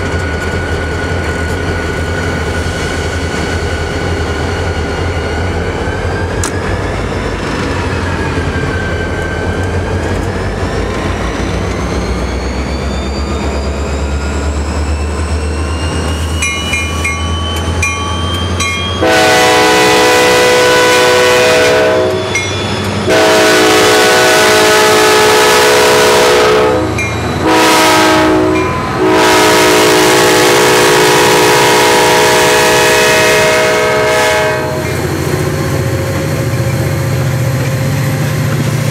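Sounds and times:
diesel locomotives rumbling past: 0:00.0 - 0:38.9
locomotive air horn blasts: 0:19.0 - 0:22.4, 0:23.1 - 0:35.0.

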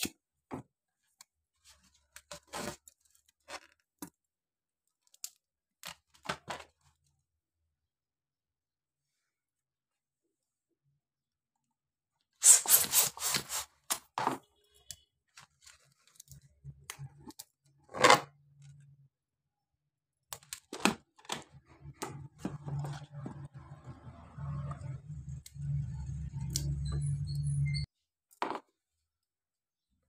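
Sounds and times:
balloon rubber crackling and squeaking: 0:12.4 - 0:14.6.

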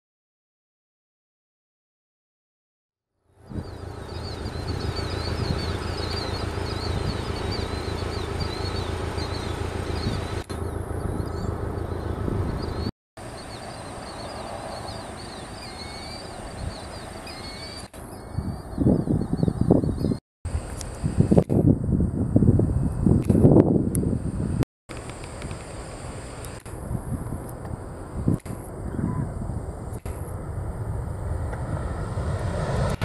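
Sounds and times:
jet engines low rumble: 0:03.2 - 0:33.0
small birds chirping: 0:03.3 - 0:20.2
wind buffeting microphone: 0:03.4 - 0:33.0.

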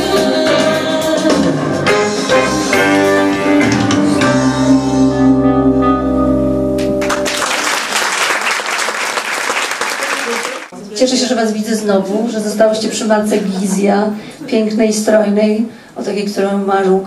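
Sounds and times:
woman singing: 0:00.0 - 0:03.1
backing music: 0:00.0 - 0:07.7
audience applauding: 0:06.8 - 0:10.7.

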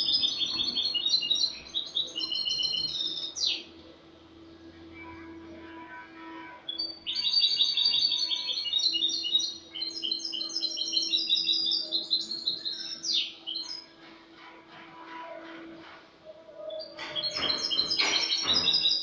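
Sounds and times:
goldfinch twittering song: 0:00.0 - 0:03.7, 0:06.7 - 0:13.9, 0:16.8 - 0:19.0.

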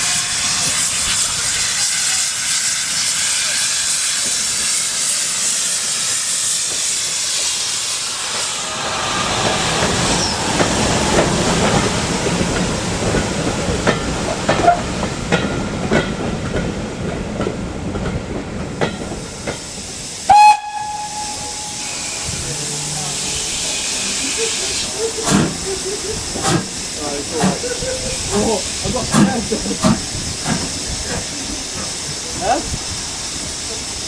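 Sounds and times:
steam hissing: 0:00.0 - 0:34.0
train wheels clicking over rail joints: 0:00.3 - 0:08.7, 0:09.3 - 0:34.0
steam locomotive whistle: 0:20.3 - 0:25.0.

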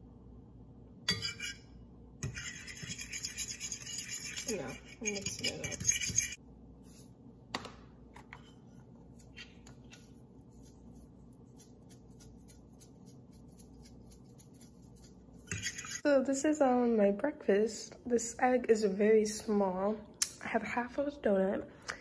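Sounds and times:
fork scraping frying pan: 0:01.1 - 0:06.4, 0:11.5 - 0:16.0
seasoning shaker ticking: 0:10.5 - 0:16.0.

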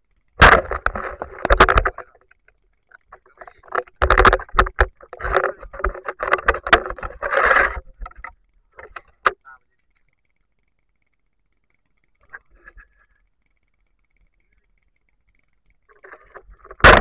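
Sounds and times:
water splashing and sloshing: 0:00.1 - 0:09.4, 0:15.5 - 0:17.0
sharp clicks and knocks: 0:00.2 - 0:12.5, 0:13.4 - 0:17.0.

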